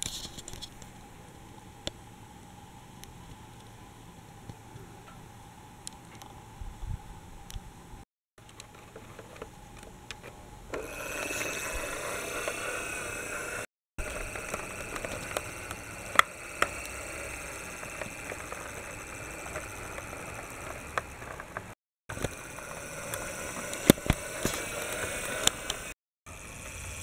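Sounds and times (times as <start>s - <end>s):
toy vehicle motor whirring: 8.5s - 27.0s.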